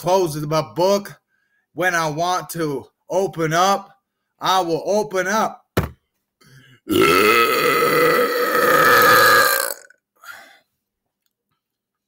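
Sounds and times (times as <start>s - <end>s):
man belching loudly: 6.9s - 10.0s.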